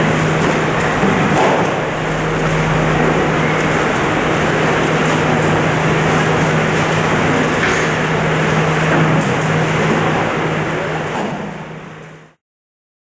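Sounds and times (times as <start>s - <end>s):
constant low hum: 0.0s - 12.4s.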